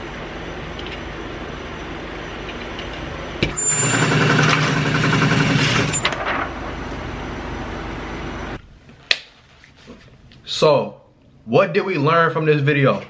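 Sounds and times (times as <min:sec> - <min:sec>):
steady background hum: 0:00.0 - 0:13.0
target carrier motor running: 0:03.5 - 0:06.4.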